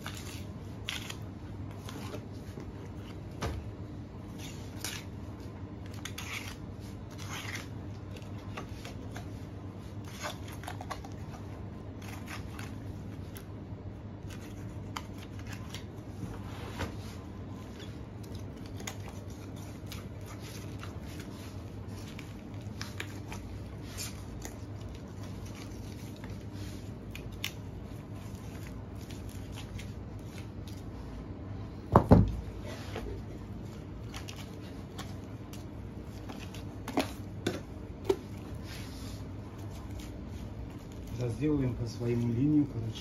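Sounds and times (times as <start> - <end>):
knife cutting and scraping meat: 0.0 - 3.3, 4.3 - 13.5, 17.1 - 31.1
steady low hum: 0.0 - 43.0.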